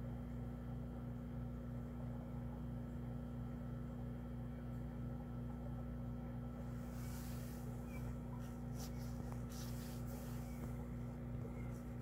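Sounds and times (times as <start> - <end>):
low machine hum: 0.0 - 12.0
faint regular pulsing: 6.4 - 12.0.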